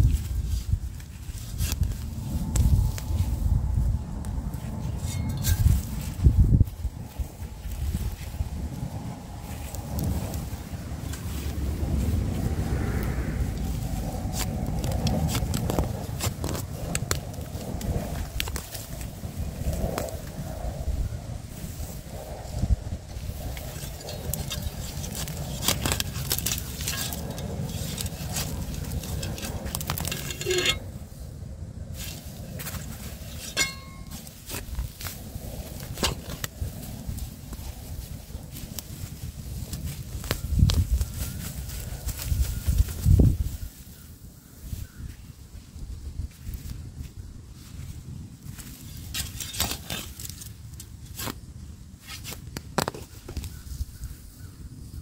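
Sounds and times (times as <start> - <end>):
weeds tearing out of earth: 0.0 - 20.4, 21.5 - 31.1, 31.9 - 43.6, 48.5 - 53.6
spade digging into soil: 4.9 - 6.1, 23.5 - 30.9, 32.0 - 35.0, 49.1 - 51.4
spade blade clinking: 5.0 - 5.9, 23.8 - 30.9, 33.3 - 34.3.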